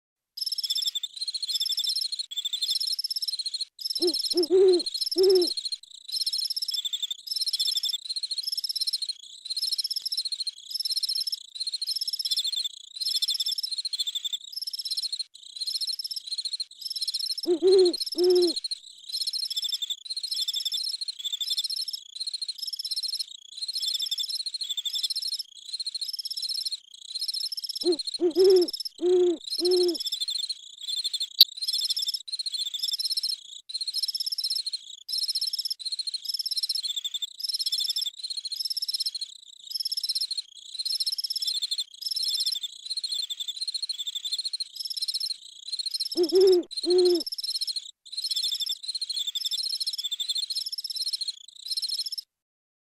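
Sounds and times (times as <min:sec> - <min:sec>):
insects chirping: 0:03.8 - 0:05.5, 0:17.0 - 0:18.6, 0:27.4 - 0:30.4, 0:44.8 - 0:47.9
owl hooting: 0:04.0 - 0:05.6, 0:17.4 - 0:18.6, 0:27.8 - 0:30.0, 0:46.1 - 0:47.3.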